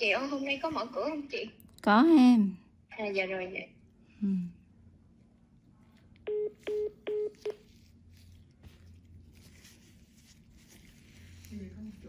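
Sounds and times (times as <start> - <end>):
low steady hum: 0.0 - 12.0
telephone beeps: 6.3 - 7.6.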